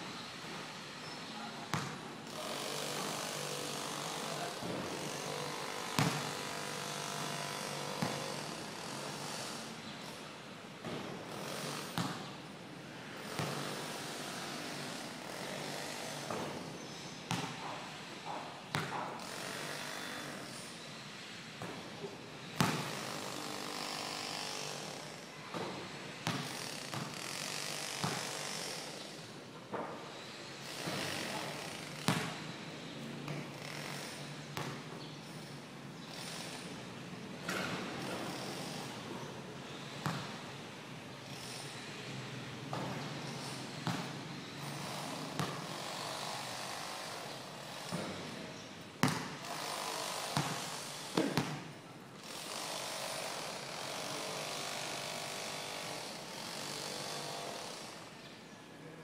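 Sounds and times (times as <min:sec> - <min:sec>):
steady background noise: 0:00.0 - 0:59.0
basketball bouncing on concrete: 0:01.7 - 0:02.0, 0:06.0 - 0:06.4, 0:07.8 - 0:08.4, 0:11.7 - 0:12.3, 0:13.3 - 0:13.7, 0:17.3 - 0:19.1, 0:22.6 - 0:23.1, 0:25.5 - 0:28.4, 0:32.0 - 0:32.4, 0:34.6 - 0:34.9, 0:40.0 - 0:40.4, 0:43.8 - 0:44.2, 0:45.4 - 0:45.8, 0:49.0 - 0:49.6, 0:50.2 - 0:51.7
basketball hitting hard: 0:06.0 - 0:06.4, 0:22.6 - 0:22.9, 0:28.0 - 0:28.2, 0:40.0 - 0:40.4, 0:49.0 - 0:49.4, 0:50.4 - 0:50.6, 0:51.2 - 0:51.6.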